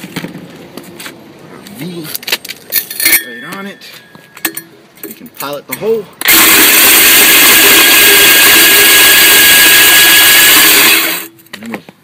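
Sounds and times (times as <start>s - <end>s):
hammer drill boring into concrete: 6.2s - 11.3s.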